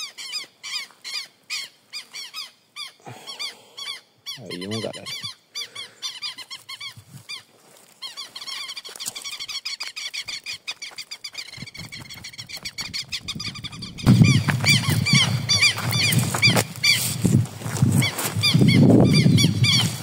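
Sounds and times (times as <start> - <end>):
animal chirping calls: 0.0 - 17.1, 18.0 - 20.0
soft footsteps on mud: 6.3 - 18.8.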